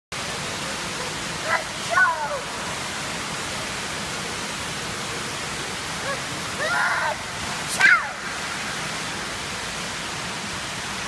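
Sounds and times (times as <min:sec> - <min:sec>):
fountain jets splashing: 0:00.2 - 0:11.0
child making high-pitched sounds: 0:01.4 - 0:02.5, 0:06.0 - 0:07.2, 0:07.8 - 0:08.2.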